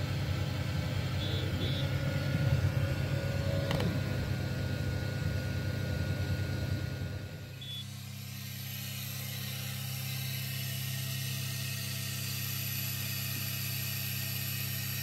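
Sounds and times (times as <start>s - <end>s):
laser cutter fan humming: 0.0s - 15.0s.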